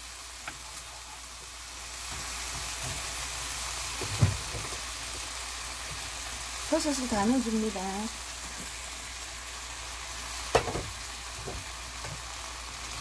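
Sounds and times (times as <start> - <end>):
meat sizzling in a pan: 0.0 - 13.0
knock: 10.5 - 12.2.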